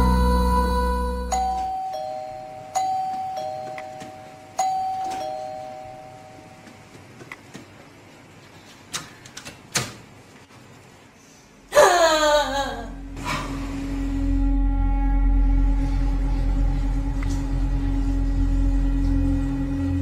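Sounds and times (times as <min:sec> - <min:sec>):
electronic doorbell chiming: 0:01.3 - 0:06.6
door opening clicks: 0:08.9 - 0:10.1.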